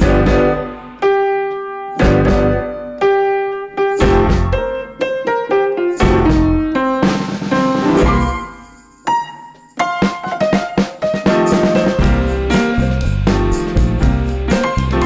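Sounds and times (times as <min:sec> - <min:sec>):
low bass notes: 0:00.0 - 0:00.9, 0:02.0 - 0:02.7, 0:04.0 - 0:04.7, 0:12.0 - 0:15.0
keyboard melody: 0:00.0 - 0:15.0.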